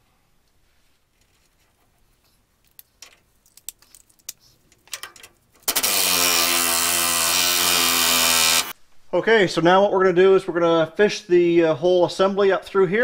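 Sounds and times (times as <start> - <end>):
handheld power tool running: 5.6 - 8.7.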